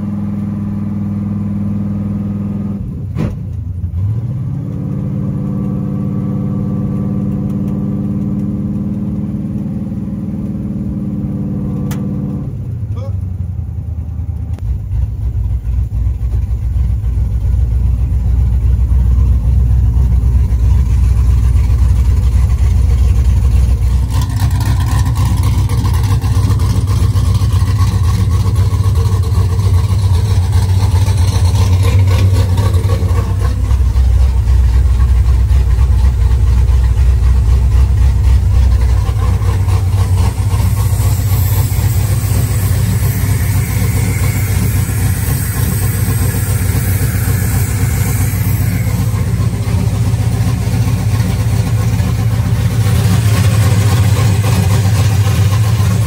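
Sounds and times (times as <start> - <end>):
truck engine idling: 12.7 - 56.0.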